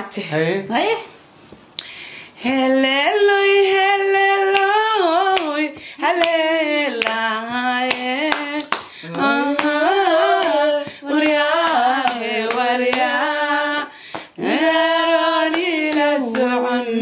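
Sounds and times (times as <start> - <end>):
man and woman singing: 2.4 - 17.0
hand claps: 5.3 - 6.4, 7.0 - 13.1, 14.1 - 14.4, 15.5 - 16.6.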